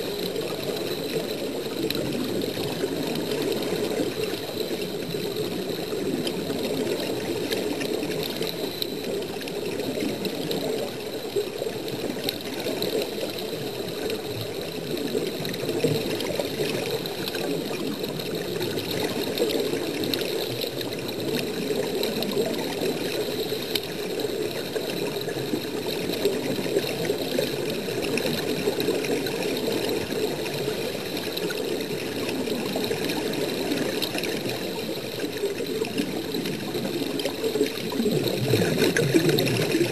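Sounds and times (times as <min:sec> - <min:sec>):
muffled underwater bubbling: 0:00.0 - 0:39.9.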